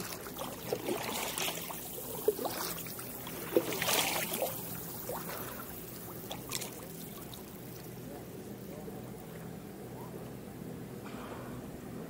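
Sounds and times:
water drips and plops: 0:00.0 - 0:08.3
paddle stroke splash: 0:00.0 - 0:09.5
paddles dipping into water: 0:00.0 - 0:09.5.

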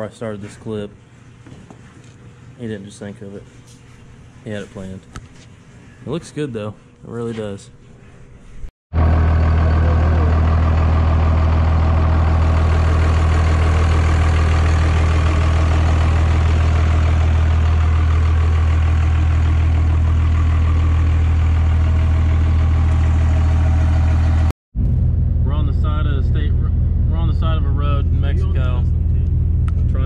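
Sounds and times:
diesel engine idling: 0:09.0 - 0:24.5, 0:25.4 - 0:30.0.

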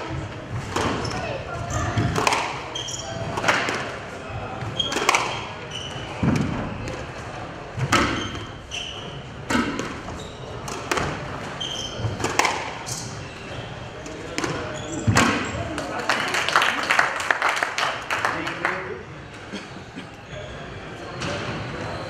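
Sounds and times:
shoes squeaking on wooden floor: 0:00.0 - 0:03.5, 0:04.5 - 0:15.6
squash ball hits: 0:00.0 - 0:04.0, 0:04.6 - 0:07.1, 0:07.8 - 0:08.6, 0:09.4 - 0:13.2, 0:14.1 - 0:15.6.

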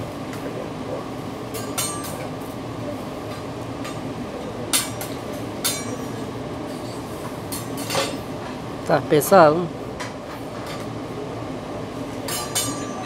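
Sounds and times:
restaurant hum: 0:00.0 - 0:13.0
metal spatula clinking on griddle: 0:01.6 - 0:02.3, 0:12.3 - 0:13.0.

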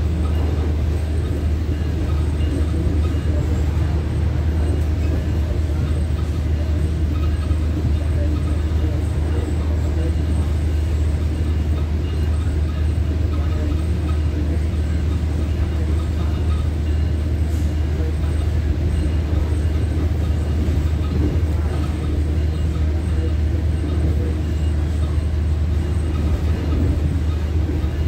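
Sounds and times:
train running noise inside coach: 0:00.0 - 0:28.0.

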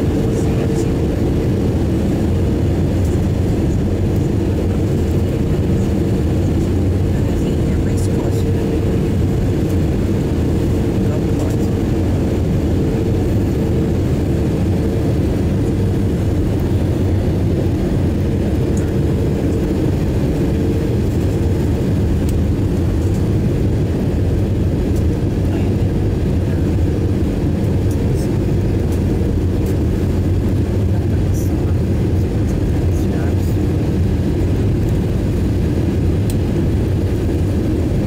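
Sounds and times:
jet engine and airflow rumble: 0:00.0 - 0:38.0.

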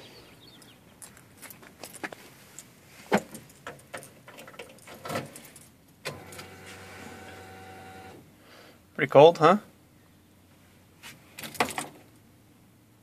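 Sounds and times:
keys jangling in ignition: 0:03.3 - 0:06.4
steady electric hum: 0:06.1 - 0:08.3.

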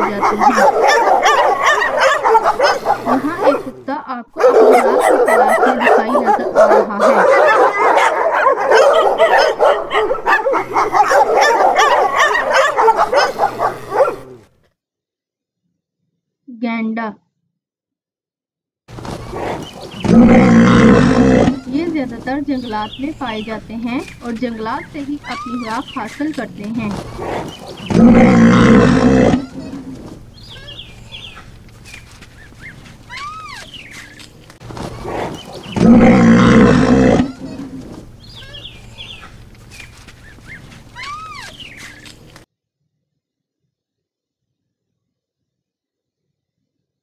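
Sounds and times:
dog barking and yipping: 0:00.0 - 0:03.7, 0:04.4 - 0:14.3, 0:23.1 - 0:27.9, 0:29.0 - 0:34.2, 0:37.4 - 0:42.0
deep rough animal call: 0:19.0 - 0:26.2, 0:26.8 - 0:42.2.

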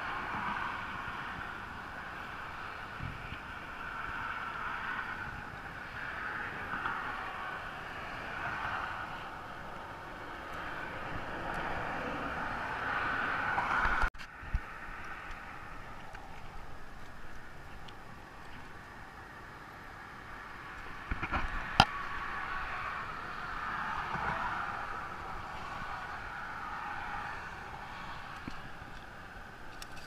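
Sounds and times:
tyres hissing on road: 0:21.6 - 0:29.7.

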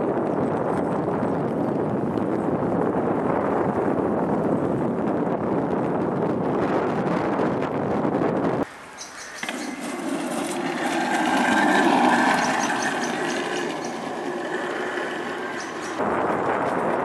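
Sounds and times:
go-kart motor whirring: 0:09.3 - 0:16.0.

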